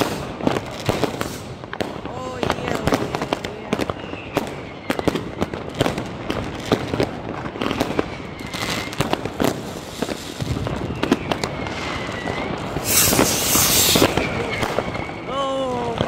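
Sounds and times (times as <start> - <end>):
firework whistles: 0.0 - 1.6, 3.8 - 5.9, 7.6 - 16.0
firecracker bangs and pops: 0.0 - 15.3
rocket launching hiss: 11.7 - 14.5.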